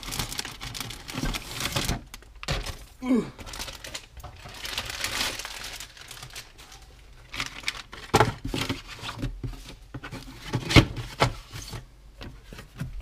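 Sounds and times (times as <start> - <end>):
plastic bag and paper rustling: 0.0 - 11.8.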